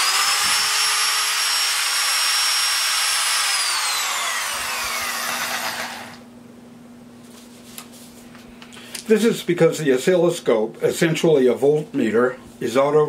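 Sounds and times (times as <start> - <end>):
electric drill motor whining: 0.0 - 6.2.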